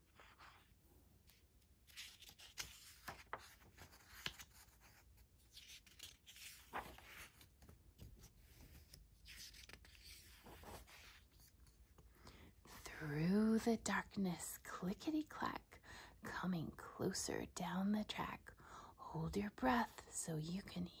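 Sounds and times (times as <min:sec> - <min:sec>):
book pages being turned: 0:00.0 - 0:12.1.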